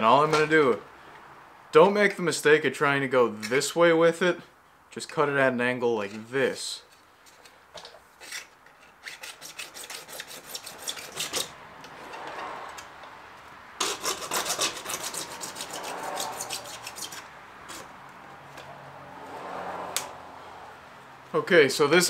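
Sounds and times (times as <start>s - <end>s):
hacksaw cutting plastic pipe: 8.2s - 11.6s, 13.8s - 17.9s.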